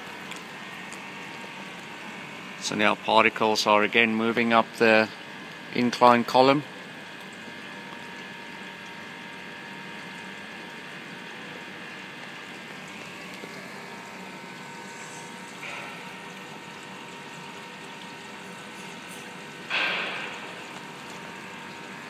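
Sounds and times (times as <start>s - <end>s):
pumped water flow hum: 0.0s - 22.0s.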